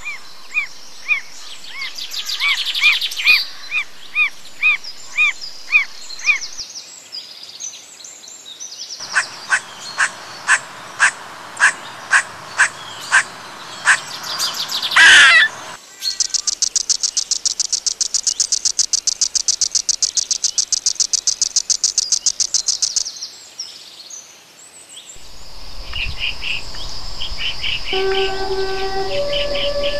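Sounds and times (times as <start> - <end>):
birds calling: 0.0 - 6.6, 9.0 - 23.0, 25.2 - 29.9
high pulsing insect trill: 9.0 - 23.0, 25.2 - 29.9
sharp repeating calls: 9.0 - 23.0.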